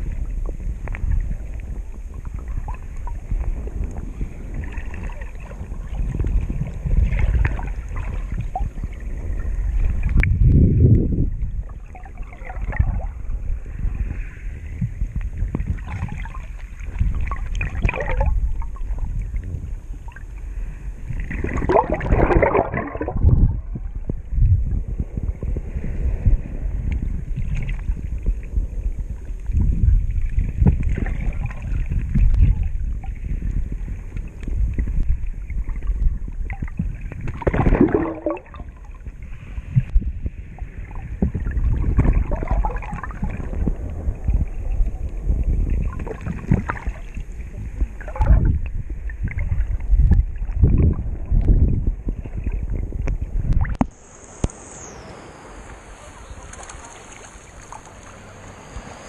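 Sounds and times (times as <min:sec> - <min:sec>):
muffled underwater water sloshing: 0:00.0 - 0:59.0
gurgling swishes: 0:21.1 - 0:24.1, 0:35.7 - 0:51.4.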